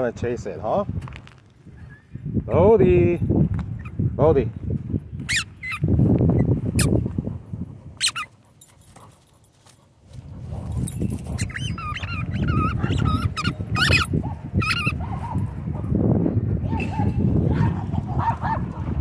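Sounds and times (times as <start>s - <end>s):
short sharp squeaks: 5.3s - 5.8s, 8.0s - 8.3s, 11.1s - 14.9s
dog whining: 8.0s - 8.3s, 11.4s - 15.1s
dog chewing a ball: 8.0s - 9.2s, 11.0s - 15.0s.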